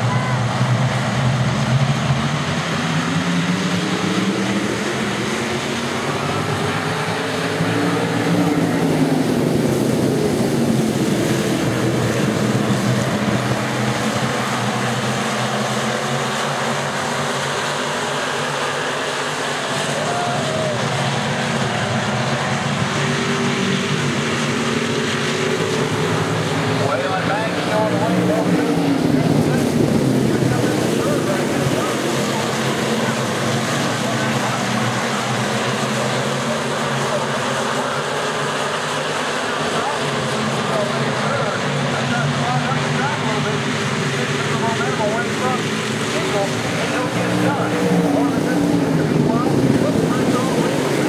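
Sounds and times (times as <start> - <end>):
race car engines revving: 0.0 - 51.0.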